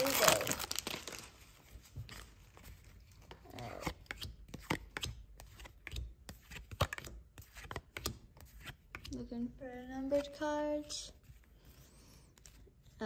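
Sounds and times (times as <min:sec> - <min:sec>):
trading cards flipped through by hand: 0:01.9 - 0:09.2.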